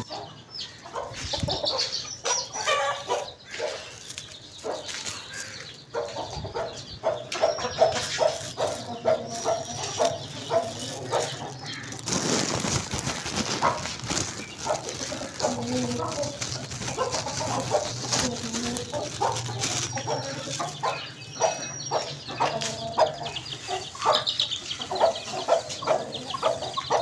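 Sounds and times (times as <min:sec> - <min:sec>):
chicks peeping: 0:00.0 - 0:27.0
hen clucking: 0:00.0 - 0:27.0
grain pattering: 0:07.9 - 0:20.9.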